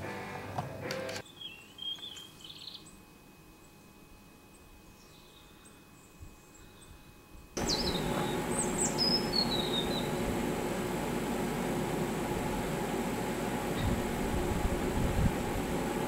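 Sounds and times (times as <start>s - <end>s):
refrigeration unit humming: 0.0s - 16.0s
faint birdsong: 1.2s - 10.3s.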